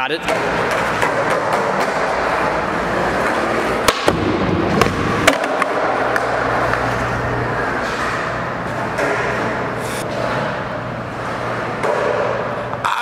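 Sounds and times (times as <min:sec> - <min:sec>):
skateboard clacking: 0:00.3 - 0:06.9
skateboard wheels rolling on concrete: 0:00.3 - 0:09.5.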